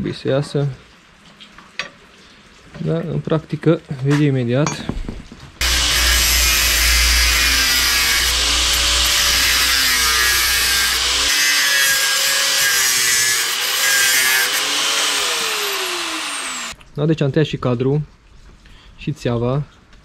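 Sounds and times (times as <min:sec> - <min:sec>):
angle grinder cutting steel: 0:05.6 - 0:16.8.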